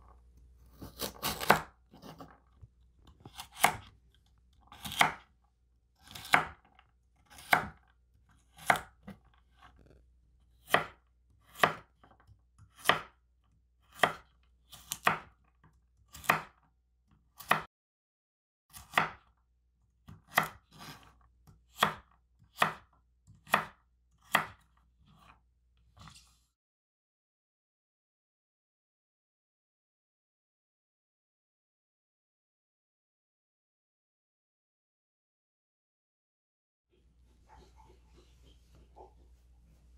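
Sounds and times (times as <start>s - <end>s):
soft handling of chopped cubes: 0.0s - 10.6s
knife chopping carrot on wooden board: 0.6s - 2.4s, 3.0s - 5.4s, 6.0s - 17.7s, 18.7s - 19.4s, 20.0s - 26.2s.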